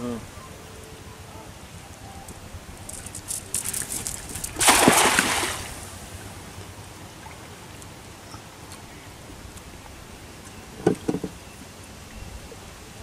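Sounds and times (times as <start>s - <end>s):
cast net splashing into water: 3.6s - 5.9s.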